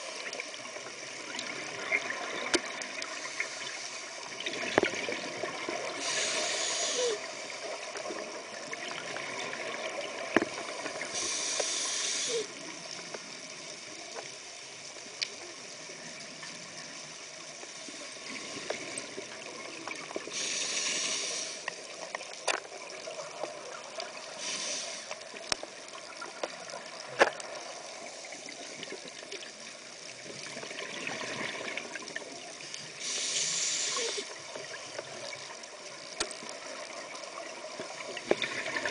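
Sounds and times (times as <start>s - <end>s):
muffled underwater bubbles hissing: 0.0s - 14.0s, 15.6s - 22.1s, 22.8s - 25.5s, 26.7s - 38.9s.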